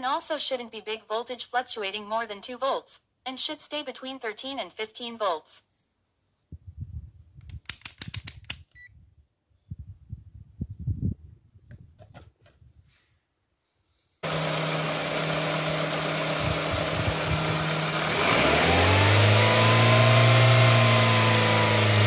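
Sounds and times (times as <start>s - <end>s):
car engine running and revving: 14.2s - 22.0s.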